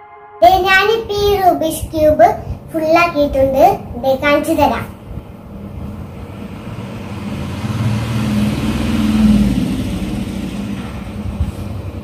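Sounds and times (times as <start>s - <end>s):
passing vehicle engine rumble: 4.9s - 12.0s.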